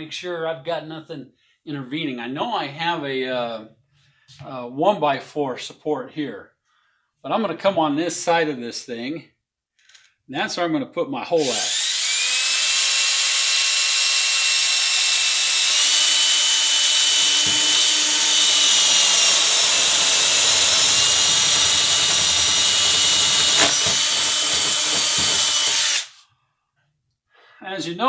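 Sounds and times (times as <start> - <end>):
cordless drill boring through foam: 11.4 - 26.2.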